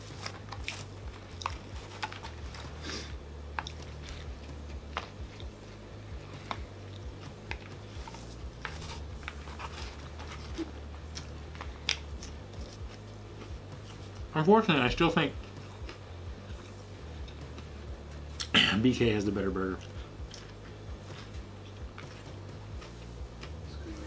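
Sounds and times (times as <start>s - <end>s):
man chewing food: 0.0s - 14.3s, 15.4s - 18.6s, 19.8s - 23.7s
steady low hum: 0.0s - 24.0s.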